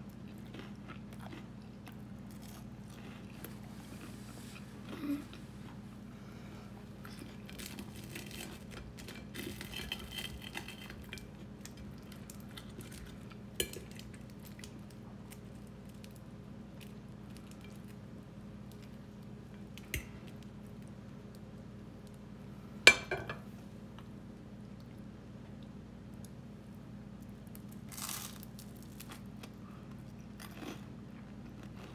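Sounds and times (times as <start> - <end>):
steady low hum: 0.0 - 31.9.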